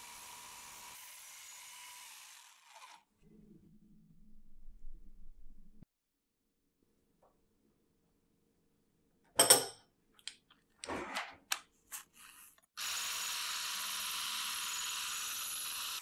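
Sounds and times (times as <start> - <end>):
electric mixer running: 0.0 - 3.1, 12.8 - 16.0.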